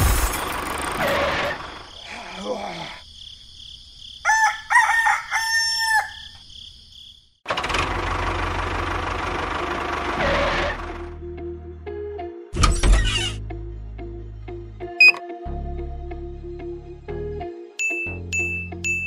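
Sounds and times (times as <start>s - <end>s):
rooster crowing: 4.2s - 6.5s.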